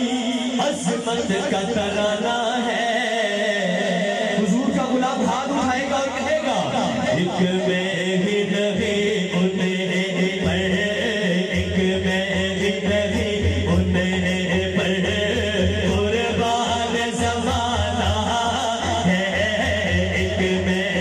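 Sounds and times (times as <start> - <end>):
man singing devotional song: 0.0 - 21.0.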